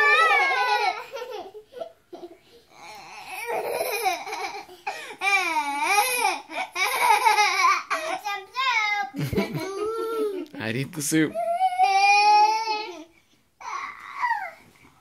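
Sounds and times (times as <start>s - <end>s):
small children laughing: 0.0s - 8.2s, 9.0s - 10.6s.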